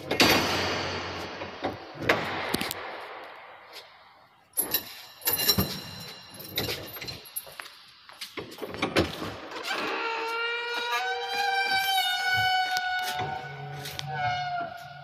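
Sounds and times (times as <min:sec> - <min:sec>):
door bolts clanking and rattling: 0:00.0 - 0:02.9, 0:04.6 - 0:07.4.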